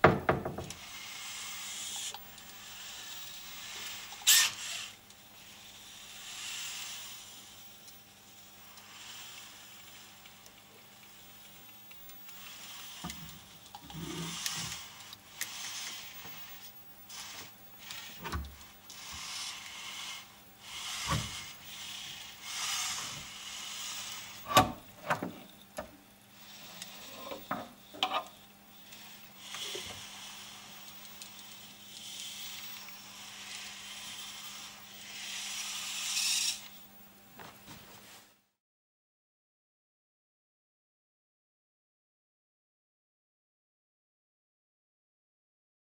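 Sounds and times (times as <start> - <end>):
servo motors whirring: 0.8 - 7.4, 12.3 - 25.6, 26.3 - 36.8.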